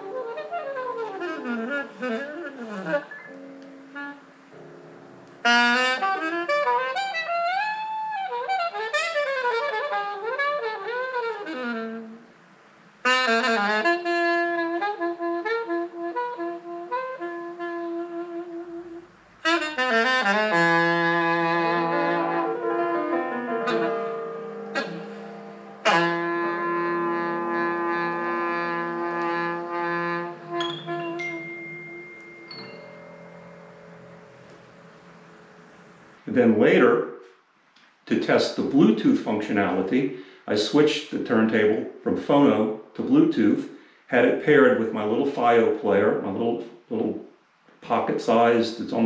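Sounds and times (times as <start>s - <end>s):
vinyl record music through speakers: 0.0s - 36.6s.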